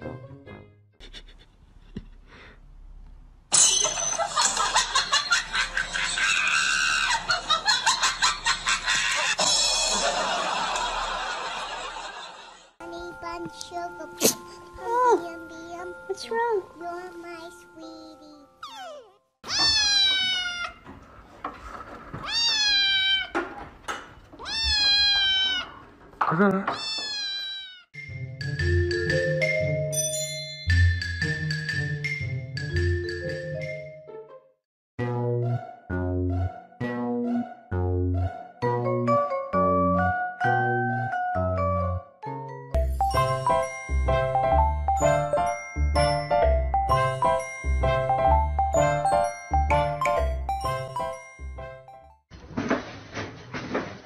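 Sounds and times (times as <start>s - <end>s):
music: 0.0s - 0.9s, 12.8s - 18.6s, 28.0s - 52.2s
person laughing and shrieking: 6.2s - 7.4s
kitten meowing loudly: 18.6s - 20.8s, 22.2s - 23.4s, 24.4s - 25.8s, 26.8s - 27.8s.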